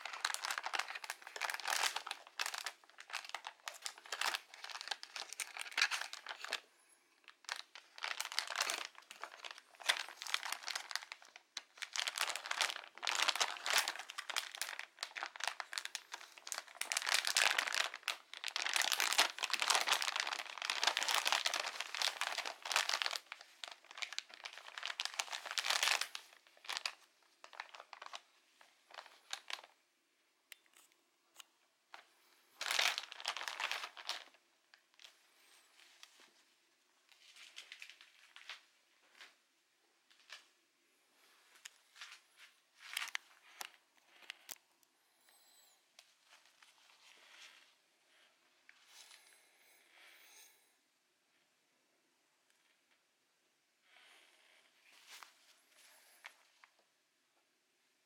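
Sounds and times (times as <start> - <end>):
plastic bag crinkling: 0.0 - 29.8, 31.9 - 36.4, 37.1 - 39.4, 41.4 - 44.6, 46.0 - 47.7.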